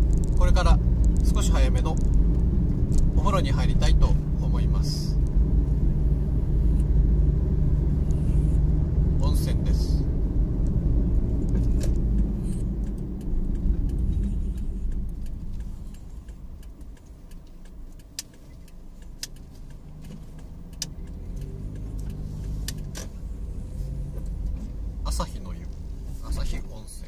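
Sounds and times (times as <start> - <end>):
van engine and road rumble: 0.0 - 27.0
small clicks and rattles in cabin: 10.6 - 23.3.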